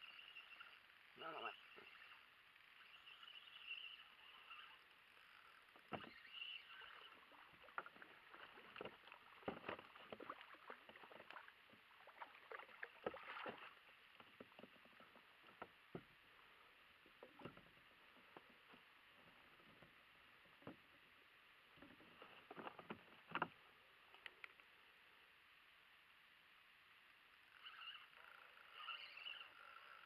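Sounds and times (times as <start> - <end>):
fish splashing at water surface: 8.1 - 13.8.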